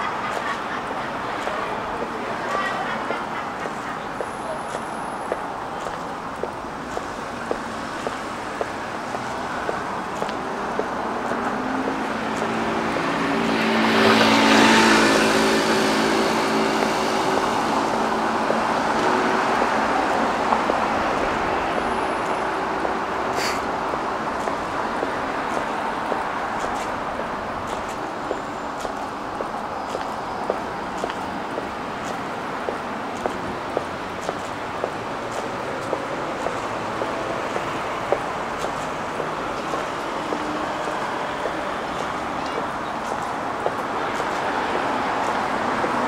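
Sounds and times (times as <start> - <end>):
street traffic: 0.0 - 46.0
footsteps: 4.7 - 14.4, 24.4 - 44.5
vehicle passing close: 10.6 - 27.2.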